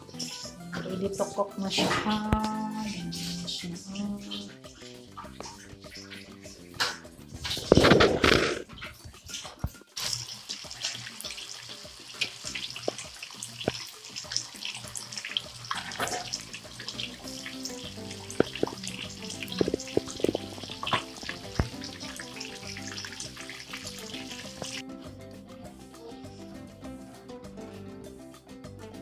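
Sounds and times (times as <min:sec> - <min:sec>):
deep-frying sizzle with pops: 0:00.0 - 0:24.8.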